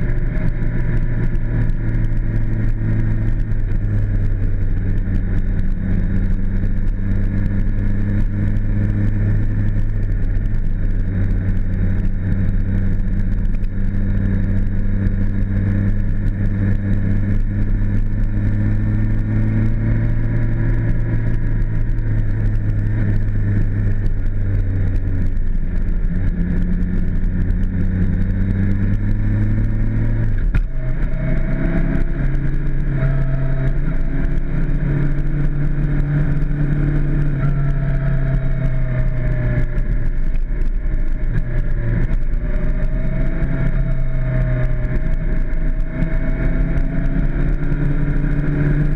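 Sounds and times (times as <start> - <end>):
motorcycle engine running: 0.0 - 48.9.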